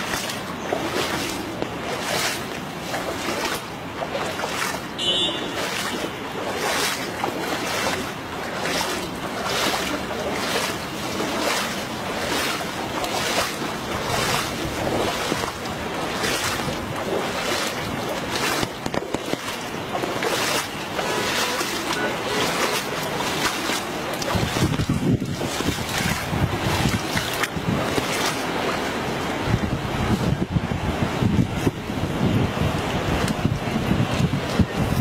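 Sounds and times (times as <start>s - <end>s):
footsteps splashing through water: 0.0s - 35.0s
wind noise on microphone: 12.3s - 21.0s, 22.8s - 35.0s.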